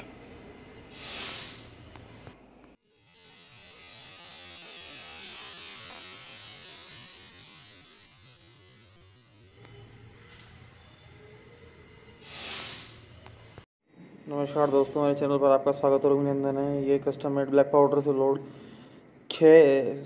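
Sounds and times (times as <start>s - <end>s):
match hiss: 0.9s - 1.8s, 12.2s - 13.3s
black powder fizzing in a tube: 12.2s - 13.0s.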